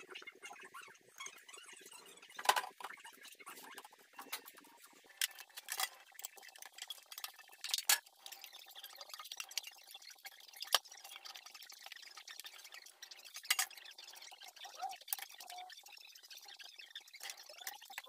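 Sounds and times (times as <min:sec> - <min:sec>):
glass and metal items clinking: 0:03.7 - 0:10.0, 0:10.6 - 0:14.3.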